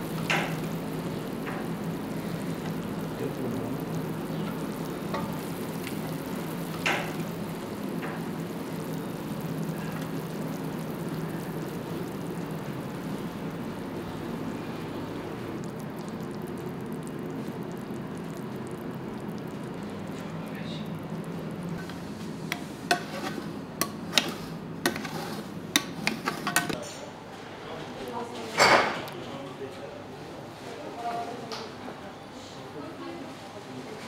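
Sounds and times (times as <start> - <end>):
syrup sizzling and bubbling: 0.0 - 26.8.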